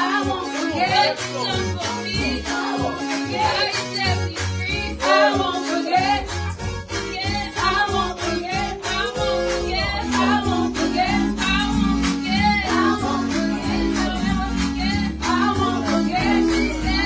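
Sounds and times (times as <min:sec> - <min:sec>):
instrumental backing with steady beat: 0:00.0 - 0:17.0
women singing gospel song: 0:00.0 - 0:17.0.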